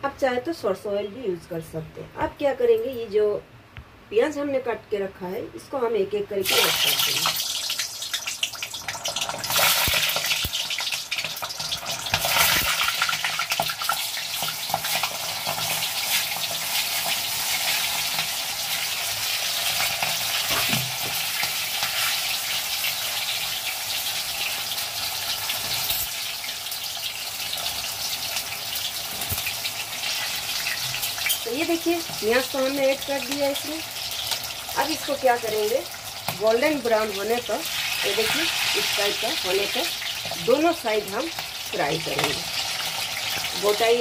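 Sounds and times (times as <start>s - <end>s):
onions sizzling in oil: 6.4s - 44.0s.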